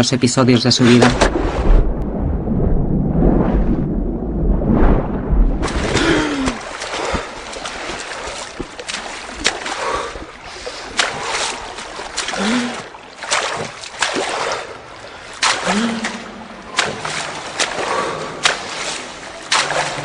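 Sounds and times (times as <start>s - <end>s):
water splashing and sloshing: 0.8s - 20.0s
deep low boom: 1.0s - 6.2s.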